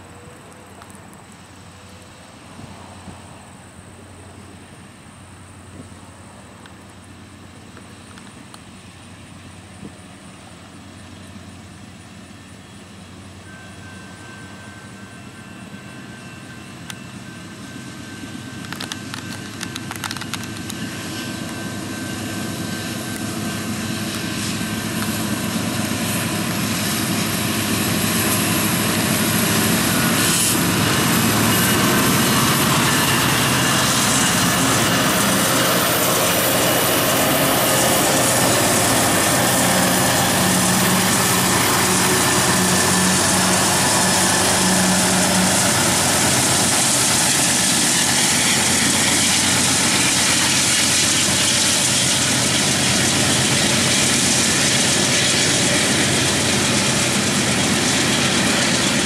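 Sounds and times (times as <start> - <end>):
diesel locomotives rumbling past: 0.0 - 59.0
sharp clicks: 18.6 - 20.8.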